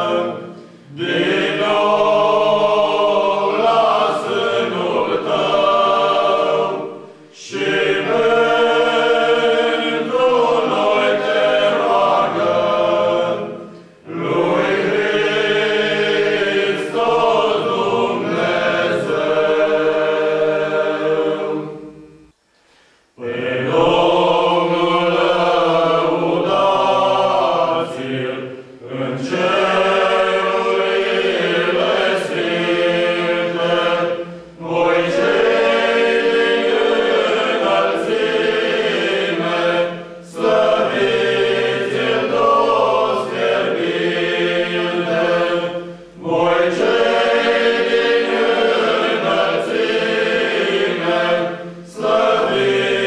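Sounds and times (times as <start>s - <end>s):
men's choir singing a cappella: 0.0s - 22.4s, 23.1s - 53.0s
singers breathing: 0.5s - 1.0s, 7.0s - 7.4s, 22.4s - 23.2s, 34.2s - 34.6s.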